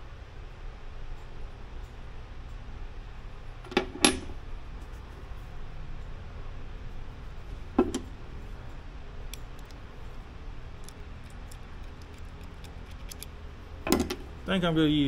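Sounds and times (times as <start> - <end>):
steady low hum: 0.0 - 15.0
light clicks of small parts: 8.6 - 14.1.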